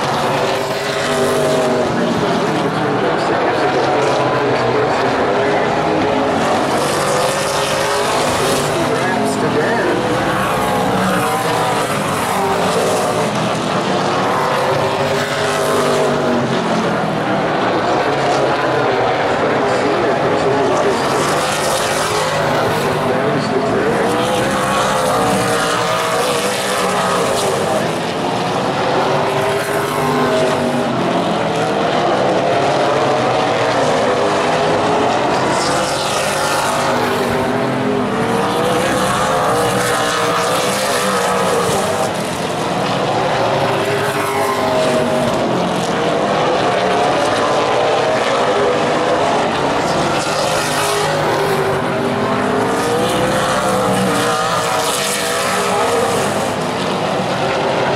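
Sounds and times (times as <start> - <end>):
stock cars racing: 0.0 - 57.9.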